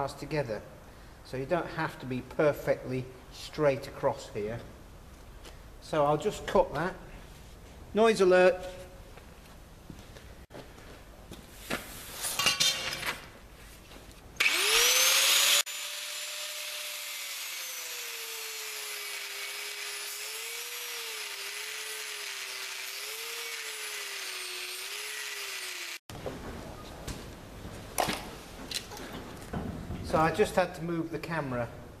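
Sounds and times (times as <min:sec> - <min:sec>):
angle grinder cutting steel: 0:14.4 - 0:26.0.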